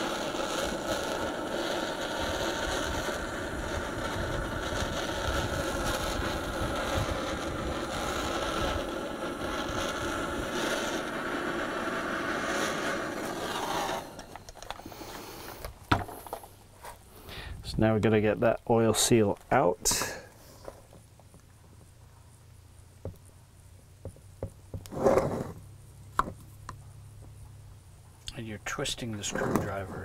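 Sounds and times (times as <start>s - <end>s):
torch flame hissing: 0.0s - 17.5s, 19.0s - 21.0s, 24.6s - 25.8s, 28.6s - 30.0s.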